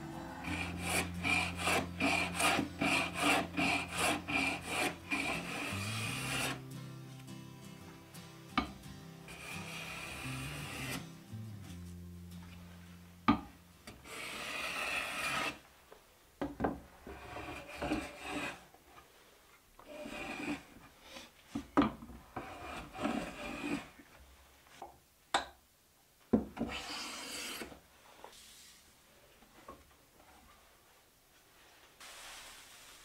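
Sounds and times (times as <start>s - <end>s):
hand plane shaving wood: 0.4s - 6.6s, 9.3s - 11.0s, 14.0s - 15.6s, 17.1s - 18.7s, 19.9s - 20.7s, 22.4s - 24.0s.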